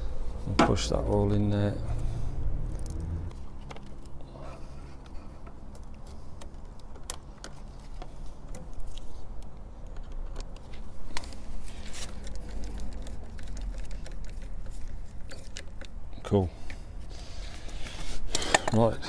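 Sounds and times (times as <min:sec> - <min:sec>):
low steady rumble: 0:00.0 - 0:05.9
screwdriver and connectors clicking: 0:05.0 - 0:11.5.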